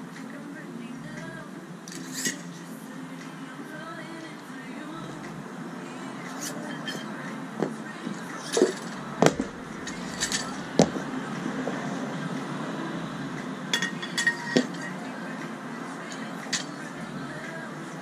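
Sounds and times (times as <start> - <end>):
background noise: 0.0 - 18.0
metal weight plates clinking: 8.2 - 11.8, 13.7 - 14.9.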